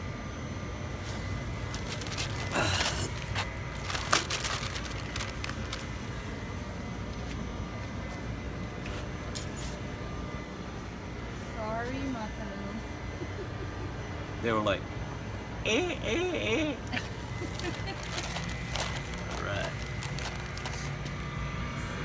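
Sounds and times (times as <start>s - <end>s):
low background rumble: 0.0s - 8.0s
plastic bag crinkling: 1.1s - 6.4s, 17.4s - 21.2s.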